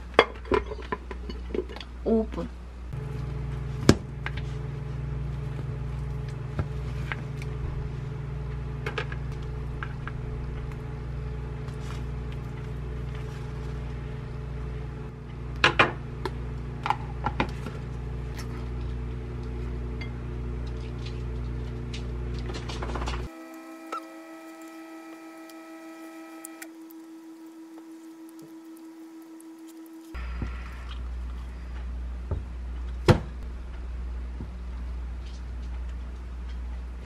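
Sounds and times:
microwave oven humming: 0:02.8 - 0:37.0.

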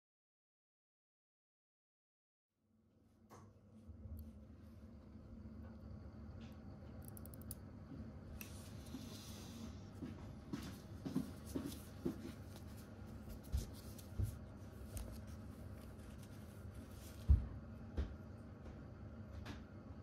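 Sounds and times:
faint steady hum: 0:02.7 - 0:20.0
soft rustle: 0:10.6 - 0:17.3.

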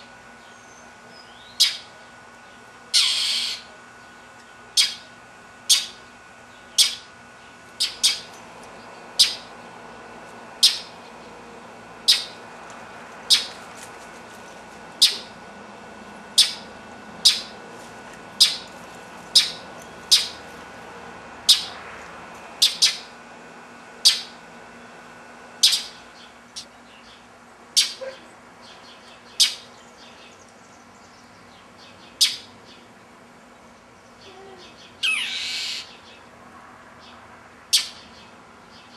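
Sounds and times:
bird giving harsh alarm calls: 0:01.5 - 0:01.9, 0:02.9 - 0:03.7, 0:04.8 - 0:05.0, 0:05.7 - 0:06.0, 0:06.8 - 0:07.1, 0:07.8 - 0:08.3, 0:09.2 - 0:09.5, 0:10.6 - 0:11.0, 0:12.0 - 0:12.4, 0:13.3 - 0:13.6, 0:15.0 - 0:15.4, 0:16.3 - 0:17.6, 0:18.4 - 0:18.7, 0:19.3 - 0:20.4, 0:21.4 - 0:21.8, 0:22.6 - 0:23.1, 0:24.0 - 0:24.4, 0:25.6 - 0:26.0, 0:27.8 - 0:28.2, 0:29.3 - 0:29.7, 0:35.0 - 0:36.0, 0:37.7 - 0:38.0.

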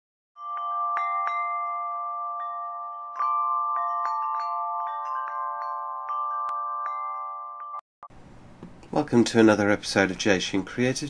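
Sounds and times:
ringing chimes music: 0:00.4 - 0:07.8.

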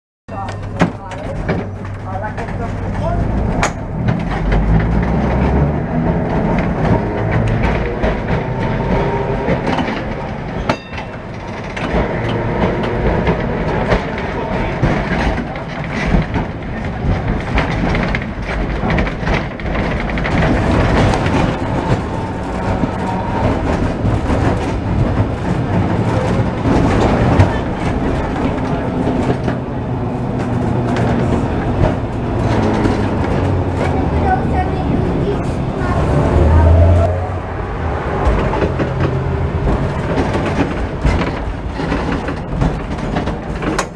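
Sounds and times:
tram wheels and motor rumbling: 0:00.3 - 0:43.9
clicks and rattles: 0:06.2 - 0:35.0.

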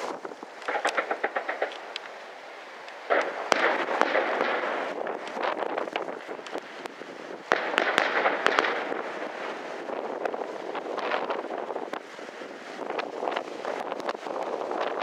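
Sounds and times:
firework bursts: 0:00.0 - 0:15.0
firework crackling: 0:00.0 - 0:15.0
sharp firework bangs: 0:00.6 - 0:02.0, 0:03.1 - 0:06.6, 0:07.3 - 0:09.6.

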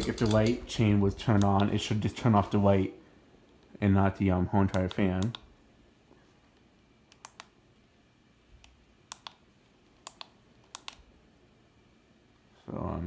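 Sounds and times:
ceiling fan whirring: 0:00.0 - 0:13.0
remote buttons clicking: 0:04.7 - 0:05.6, 0:06.5 - 0:07.6, 0:08.6 - 0:11.1.

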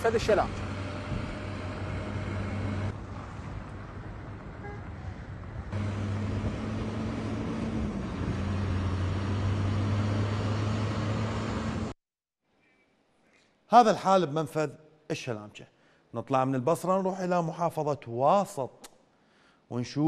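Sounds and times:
diesel trucks driving past: 0:00.0 - 0:12.0
road noise: 0:00.0 - 0:12.0.

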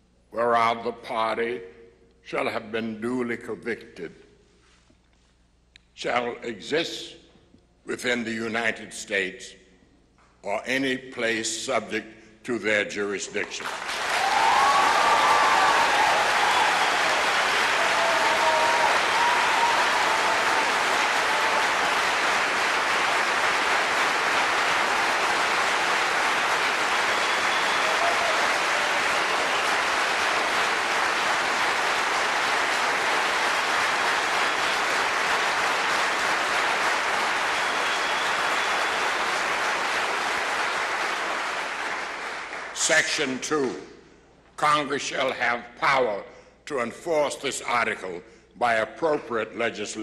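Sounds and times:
large audience applauding: 0:13.6 - 0:42.8.

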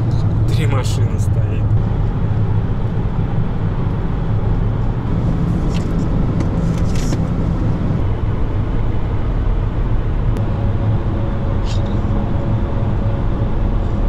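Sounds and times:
low engine hum: 0:00.0 - 0:14.0
road and tyre noise: 0:00.0 - 0:14.0.

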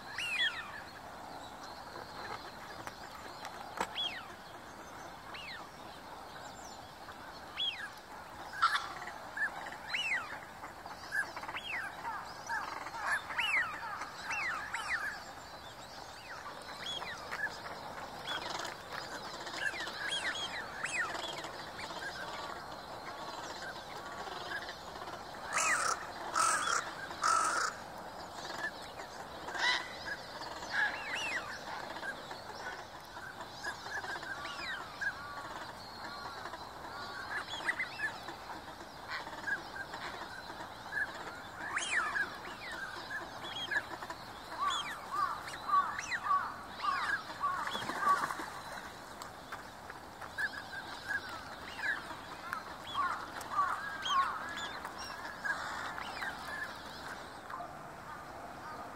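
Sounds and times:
ducks and gulls calling: 0:00.0 - 0:58.9.

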